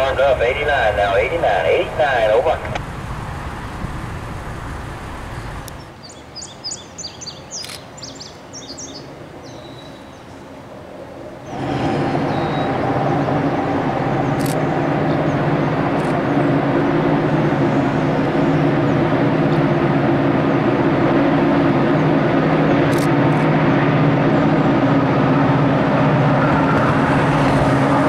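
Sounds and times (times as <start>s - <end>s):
diesel locomotives approaching: 0.0s - 6.0s, 7.6s - 28.0s
birds chirping: 11.4s - 19.4s
freight car rolling past: 11.4s - 28.0s.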